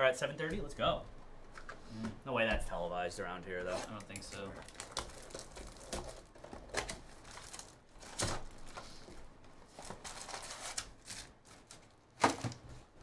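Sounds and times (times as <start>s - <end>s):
plastic wrap crinkling: 3.6s - 12.6s.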